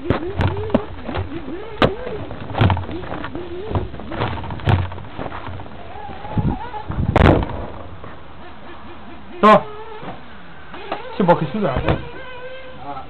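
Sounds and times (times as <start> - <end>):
small nitro engine revving: 0.0 - 2.2, 5.8 - 7.6, 10.7 - 13.0
buggy knocks and thumps: 0.0 - 8.2.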